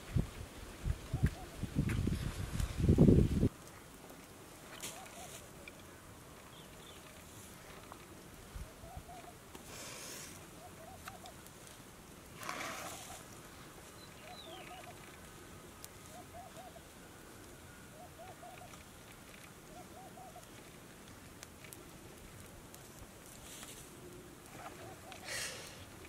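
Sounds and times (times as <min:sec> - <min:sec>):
dove cooing: 0:01.1 - 0:01.7, 0:04.8 - 0:05.5, 0:08.6 - 0:09.4, 0:10.6 - 0:11.4, 0:14.2 - 0:15.1, 0:16.0 - 0:16.9, 0:17.9 - 0:18.8, 0:19.6 - 0:20.6, 0:23.9 - 0:26.0
rustling: 0:03.5 - 0:14.0, 0:20.3 - 0:26.0.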